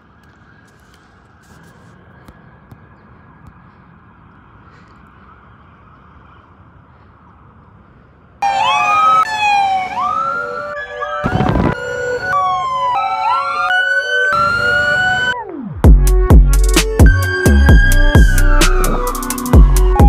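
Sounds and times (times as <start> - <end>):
emergency siren wails and yelps: 0.0 - 7.5, 8.4 - 15.8, 16.9 - 20.0
faint street noise: 0.0 - 15.4.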